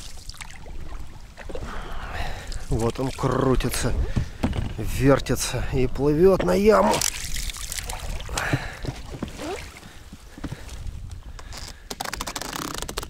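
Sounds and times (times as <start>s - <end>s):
water splashing: 0.0s - 4.4s, 6.4s - 10.8s
oars dipping and knocking: 0.0s - 13.0s.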